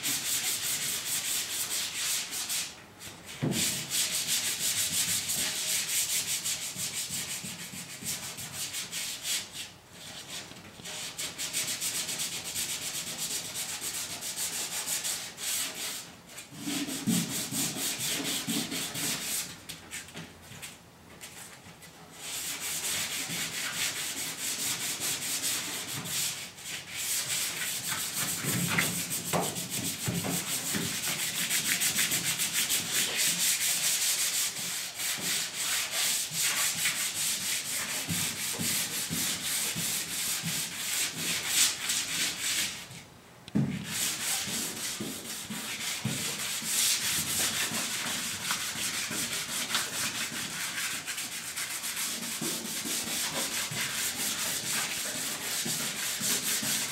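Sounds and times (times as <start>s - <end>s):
sandpaper rubbing by hand: 22.2s - 42.8s, 43.8s - 56.9s.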